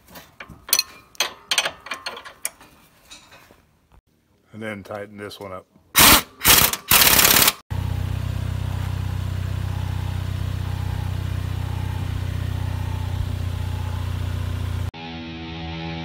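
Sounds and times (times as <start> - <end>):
power wrench bursts: 6.0 - 7.6
car engine idling: 7.7 - 14.9.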